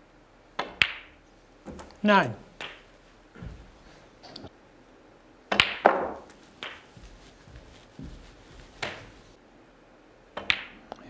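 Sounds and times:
snooker balls clicking: 0.6 - 4.5, 5.5 - 9.4, 10.4 - 10.8.

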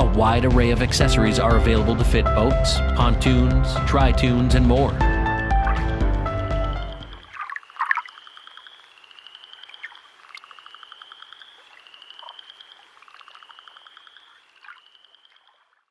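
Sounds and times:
background music: 0.0 - 7.3
frogs trilling: 5.6 - 15.9.

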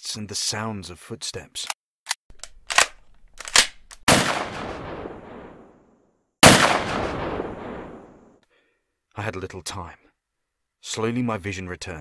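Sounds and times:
gunshot blasts with echo: 4.1 - 5.8, 6.4 - 8.3
short sharp cracks: 6.4 - 8.2.

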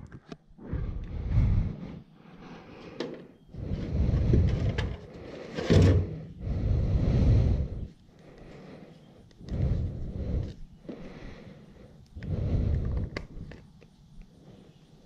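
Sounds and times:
low microphone rumble: 3.5 - 5.0.

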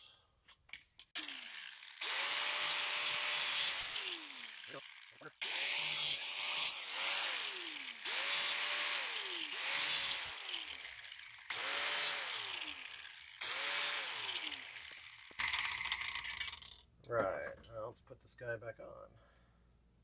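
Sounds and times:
angle grinder cutting steel: 1.2 - 16.8.

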